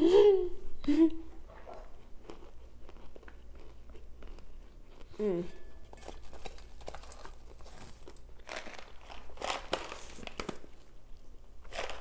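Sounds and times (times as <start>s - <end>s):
crunchy chewing: 1.6s - 5.3s, 5.9s - 10.9s.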